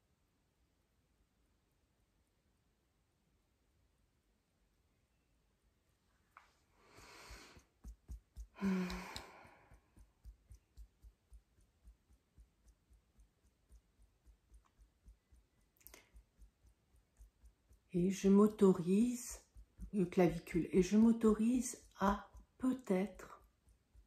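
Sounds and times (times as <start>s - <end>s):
fingertips tapping softly: 6.4s - 24.0s
person breathing out: 6.8s - 7.7s, 8.6s - 9.8s
person sighing: 8.6s - 9.8s.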